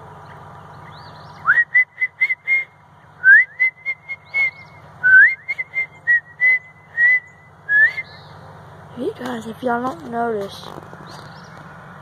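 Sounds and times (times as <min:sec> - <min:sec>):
person whistling bird call: 0:01.4 - 0:08.2.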